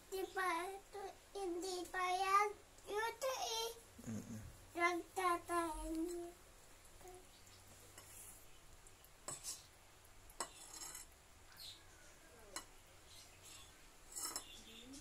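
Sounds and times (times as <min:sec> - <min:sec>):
whisk scraping bowl: 0:14.1 - 0:14.6.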